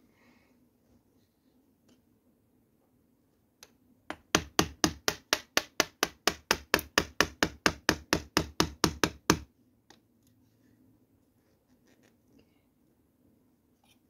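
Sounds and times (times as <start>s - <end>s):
mallet striking chisel: 4.1s - 9.5s.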